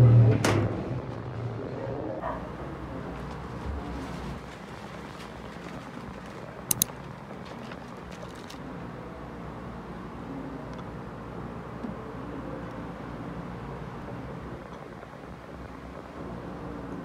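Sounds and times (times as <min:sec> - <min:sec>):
sharp double click: 0:06.7 - 0:06.9.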